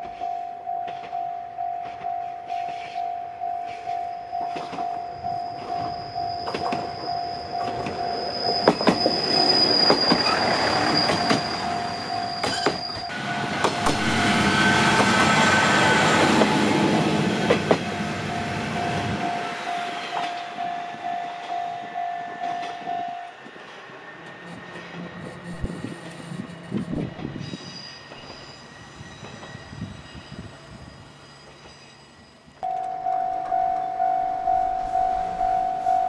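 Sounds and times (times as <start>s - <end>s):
level-crossing warning bell: 0.0s - 23.5s, 32.6s - 36.0s
train wheel noise: 0.0s - 31.9s
diesel railcar engine rumble: 0.0s - 36.0s.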